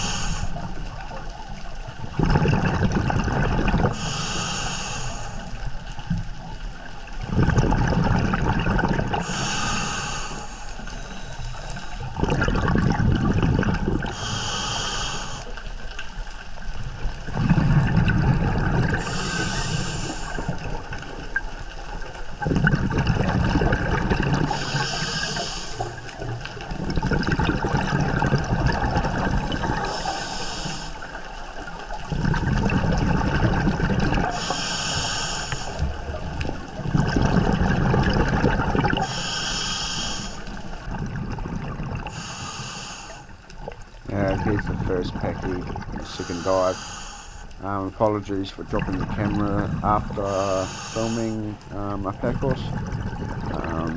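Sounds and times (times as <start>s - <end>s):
regulator inhale hiss: 0.0s - 0.7s, 3.9s - 5.6s, 9.2s - 12.1s, 14.1s - 15.7s, 19.0s - 20.6s, 24.5s - 26.1s, 29.8s - 31.1s, 34.3s - 36.0s, 39.0s - 40.7s, 42.1s - 43.4s, 46.2s - 47.6s, 50.4s - 51.4s
exhaled bubbles underwater: 0.0s - 53.9s.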